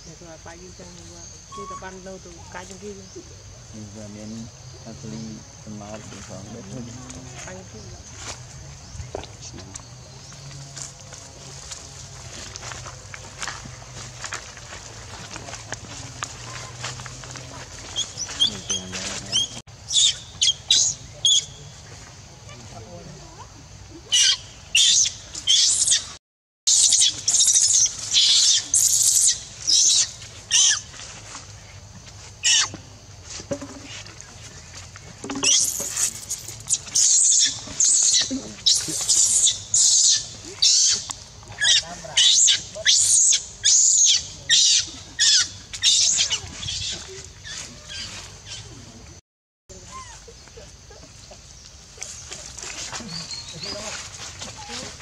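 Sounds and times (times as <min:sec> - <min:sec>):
baby monkey screaming: 0:17.9 - 0:21.5, 0:24.1 - 0:30.9, 0:32.4 - 0:32.7, 0:35.4 - 0:48.6.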